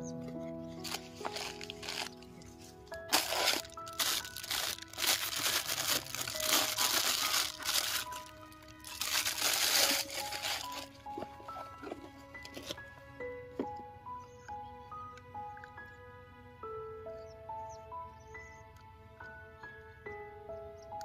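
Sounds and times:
melodic background music: 0.0 - 21.0
plastic bag crinkling: 0.8 - 12.7
newspaper crumpling: 0.8 - 12.8.

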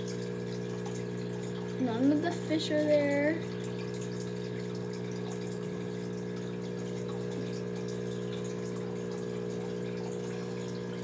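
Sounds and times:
aquarium pump humming: 0.0 - 11.0
bubbling aerated water: 0.0 - 11.0.

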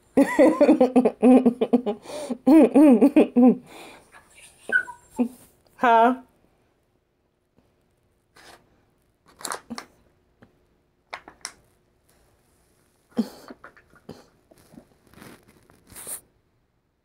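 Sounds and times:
phone rustling against clothing: 14.5 - 16.2.

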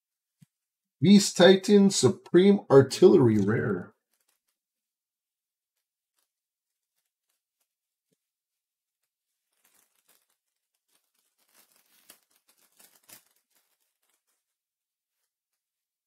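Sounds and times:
foil pack crinkling and tearing: 9.4 - 14.4.

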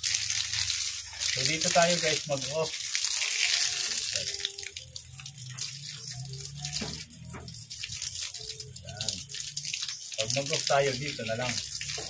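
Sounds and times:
hose nozzle water spray hissing: 0.0 - 4.7.

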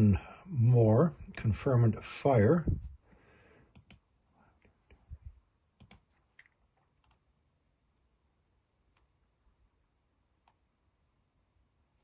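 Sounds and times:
mouse and keyboard clicks: 3.7 - 4.0, 5.8 - 7.2.

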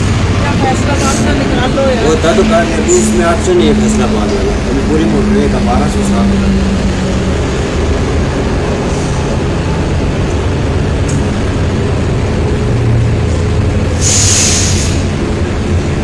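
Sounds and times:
traffic idling and passing: 0.0 - 16.0
sharp hiss: 14.0 - 15.1.

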